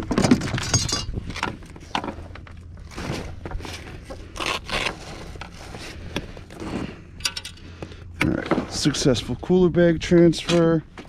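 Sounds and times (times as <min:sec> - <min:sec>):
scraping and rustling: 0:00.0 - 0:07.0
zipper rasping: 0:04.3 - 0:06.0.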